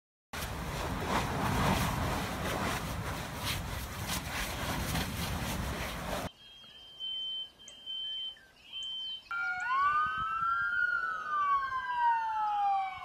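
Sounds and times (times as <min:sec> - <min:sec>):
high steady beep: 0:06.4 - 0:09.6.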